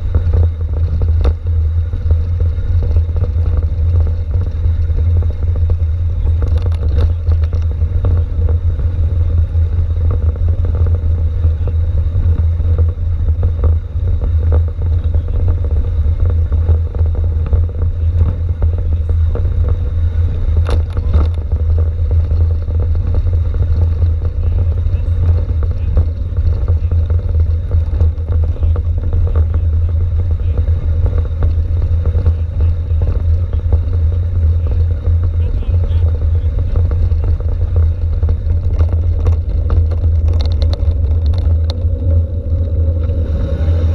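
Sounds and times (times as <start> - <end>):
bike and mount rattling: 0.0 - 43.9
bike rumbling over cobblestones: 0.0 - 43.9.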